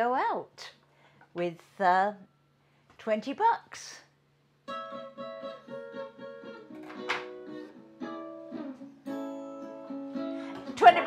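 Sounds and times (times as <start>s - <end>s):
plucked string instrument melody: 4.7s - 11.0s.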